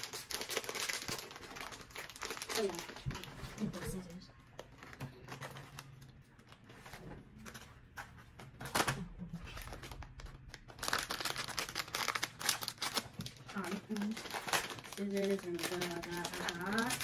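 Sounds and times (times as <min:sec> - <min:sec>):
packaging ripping: 0:00.0 - 0:03.3, 0:08.6 - 0:17.0
crinkling plastic packaging: 0:00.0 - 0:17.0.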